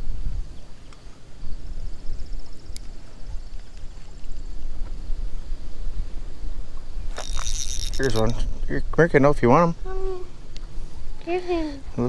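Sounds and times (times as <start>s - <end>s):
wind buffeting microphone: 0.0s - 11.2s.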